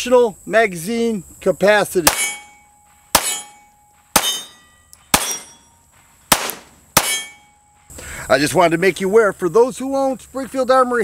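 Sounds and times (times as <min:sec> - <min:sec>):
pistol shots: 0:02.0 - 0:05.6, 0:06.3 - 0:07.4.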